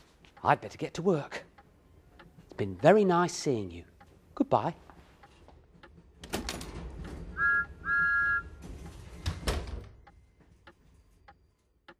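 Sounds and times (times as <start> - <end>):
clock ticking: 0.0 - 6.3, 10.0 - 11.9
door opening: 6.0 - 7.6, 8.5 - 10.1
train whistle toots: 7.4 - 8.6
door banging shut: 8.7 - 10.0.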